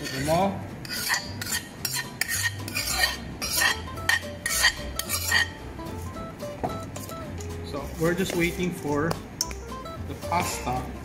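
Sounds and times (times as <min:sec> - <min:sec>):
metal spoon scraping bowls: 0:00.0 - 0:05.6.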